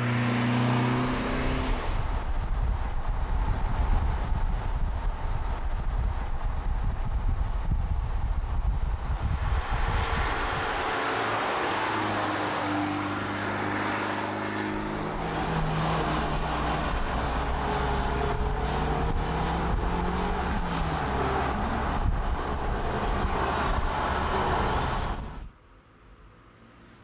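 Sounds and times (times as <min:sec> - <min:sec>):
road and wind noise: 0:00.0 - 0:27.0.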